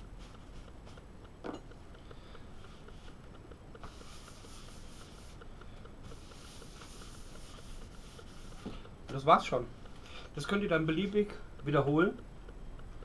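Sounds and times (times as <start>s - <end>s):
towel rubbing cutting board: 3.8s - 5.4s, 6.0s - 8.8s.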